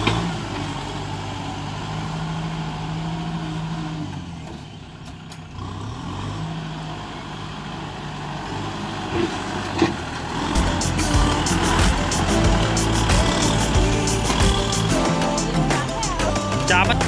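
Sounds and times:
tractor diesel engine running: 0.0 - 17.0.

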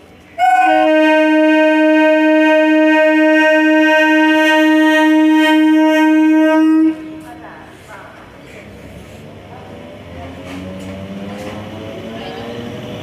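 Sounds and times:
train horn long blast: 0.3 - 7.6.

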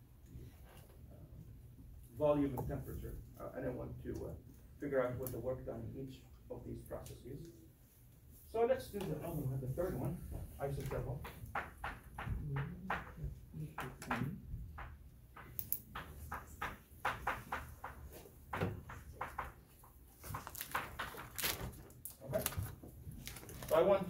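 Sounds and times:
chalk tapping and scratching on board: 9.9 - 21.2.

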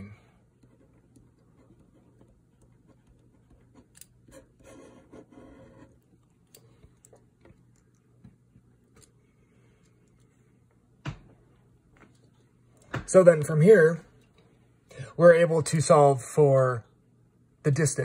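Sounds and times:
low steady hum: 0.0 - 18.0
pen scratching on paper: 0.6 - 6.0.

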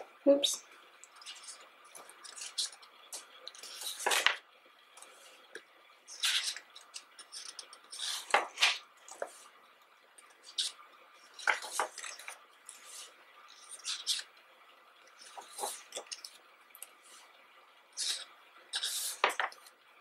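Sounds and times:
pages turning: 3.5 - 4.4, 6.1 - 9.5, 11.3 - 14.2, 15.2 - 16.3, 18.8 - 19.6.

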